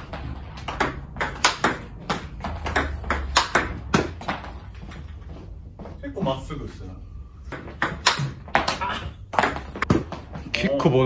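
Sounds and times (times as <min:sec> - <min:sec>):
ball bouncing on table: 0:00.0 - 0:05.2, 0:07.5 - 0:10.3
ping pong ball clicking off paddles: 0:00.0 - 0:05.2, 0:07.5 - 0:10.1.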